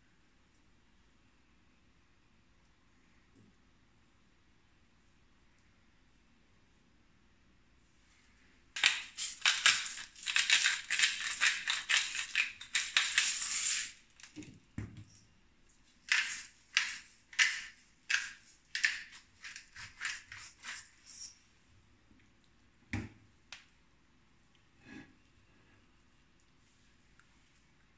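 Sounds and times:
spice mill grinding: 0:08.8 - 0:14.3, 0:16.0 - 0:21.3.

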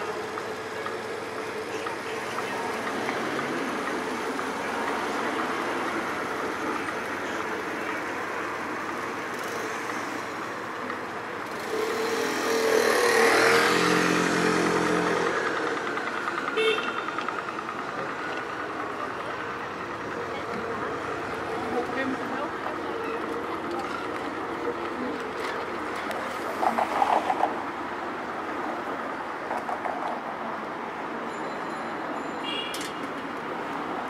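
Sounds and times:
city street traffic: 0:00.0 - 0:34.0
vehicle engine passing close: 0:11.4 - 0:16.6.

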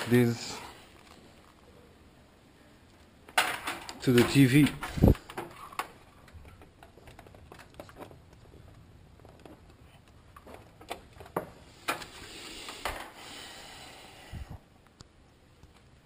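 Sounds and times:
plugs and cables clicking: 0:02.9 - 0:13.2.

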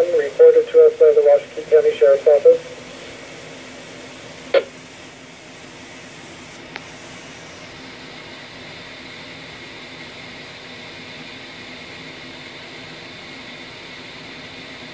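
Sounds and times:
radio static hiss: 0:00.0 - 0:08.4.

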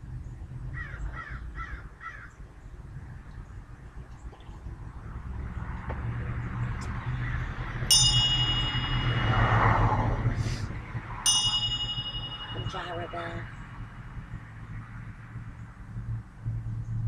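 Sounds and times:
brass hand bell ringing: 0:07.9 - 0:10.3, 0:11.2 - 0:13.5.

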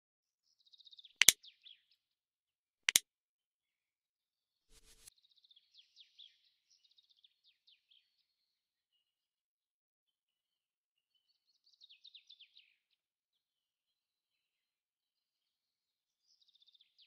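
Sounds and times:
small birds chirping: 0:11.2 - 0:12.9.

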